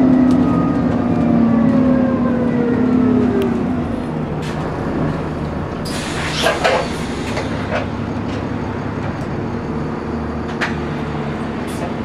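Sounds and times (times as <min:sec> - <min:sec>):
bus engine hum: 0:00.0 - 0:12.0
brief air hiss: 0:05.9 - 0:07.4.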